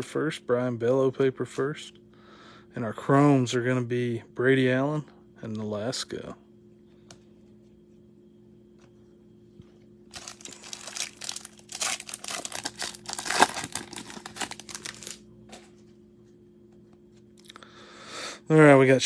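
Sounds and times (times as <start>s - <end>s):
foil wrapper tearing and crinkling: 10.1s - 15.2s
cards rustling: 10.1s - 15.8s.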